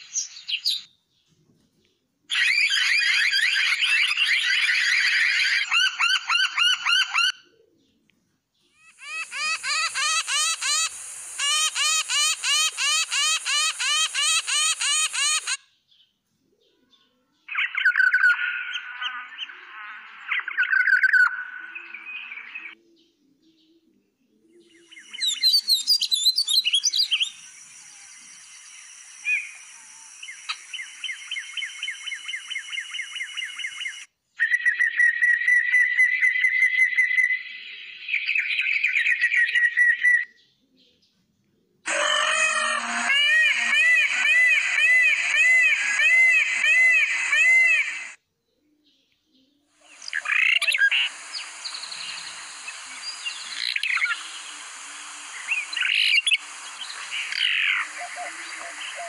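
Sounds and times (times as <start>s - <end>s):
songbird singing: 0.0s - 1.3s, 5.6s - 41.1s, 41.9s - 59.0s
peacock calling loudly: 2.3s - 7.4s, 8.8s - 15.6s, 41.9s - 48.2s, 49.9s - 59.0s
bird call of repeated notes: 8.8s - 15.6s, 41.9s - 48.2s, 49.9s - 59.0s.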